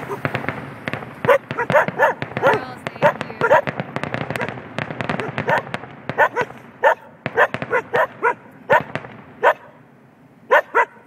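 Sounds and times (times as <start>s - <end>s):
dog barking: 1.2s - 4.6s, 5.2s - 9.8s, 10.5s - 11.0s.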